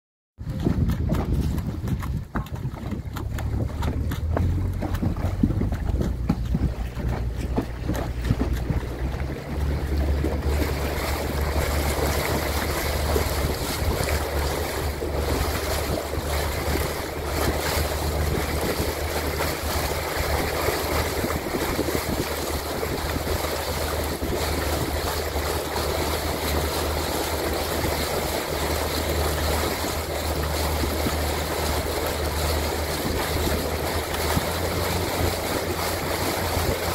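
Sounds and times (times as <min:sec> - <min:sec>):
steady low rumble: 0:00.4 - 0:36.9
water rushing past boat: 0:00.4 - 0:36.9
wind buffeting microphone: 0:00.4 - 0:36.9.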